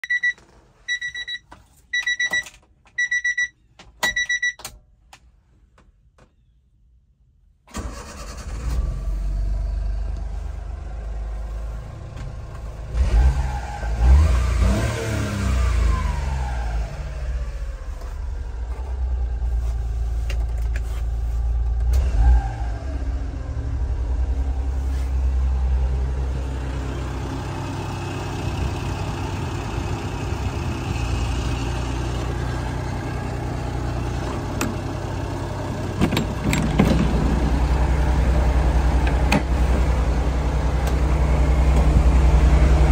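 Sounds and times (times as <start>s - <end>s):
electronic beeps: 0.0s - 4.6s
car engine starting and revving: 7.7s - 42.9s.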